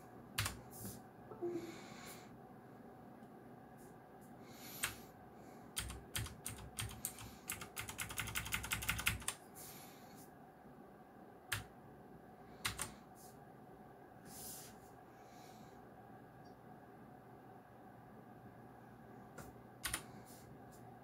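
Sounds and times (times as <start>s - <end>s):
mechanical keyboard clicks: 5.8s - 9.4s.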